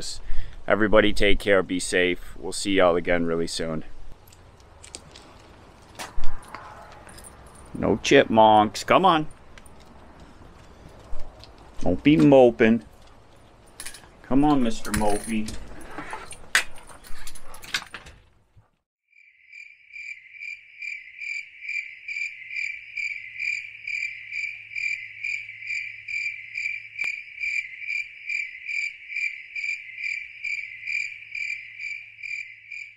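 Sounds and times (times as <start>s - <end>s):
cricket chirping: 19.1s - 32.9s.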